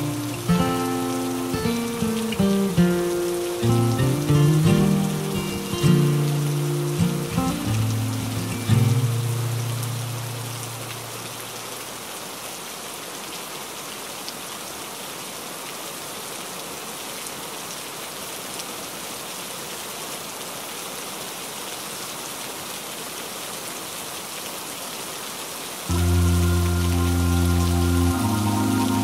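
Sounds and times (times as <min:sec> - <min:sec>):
rain on a window: 0:00.0 - 0:29.0
low music note: 0:25.9 - 0:29.0.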